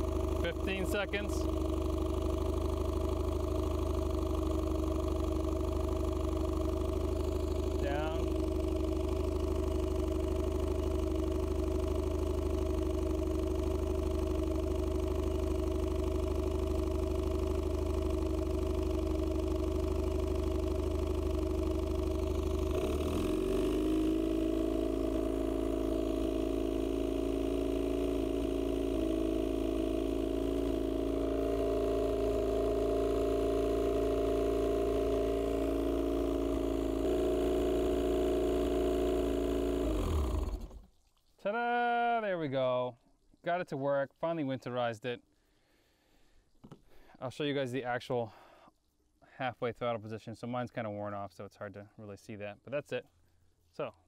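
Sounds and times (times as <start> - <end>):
outboard motor running: 0.0 - 40.9.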